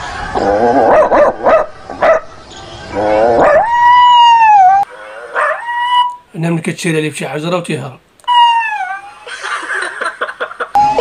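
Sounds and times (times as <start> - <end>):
long howl: 0.2 - 2.2, 2.9 - 6.2, 8.3 - 9.3
dog-like barks and yelps: 0.8 - 2.3, 3.4 - 6.2, 8.3 - 9.5.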